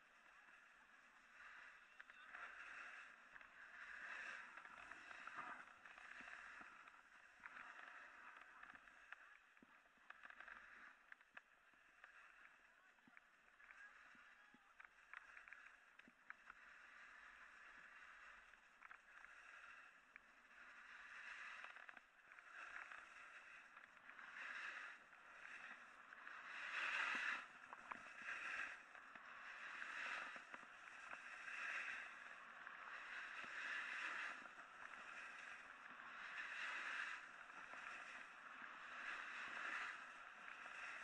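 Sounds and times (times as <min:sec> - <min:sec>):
snowboard scraping snow: 0:01.1 - 0:08.9, 0:20.5 - 0:21.7, 0:22.3 - 0:41.0.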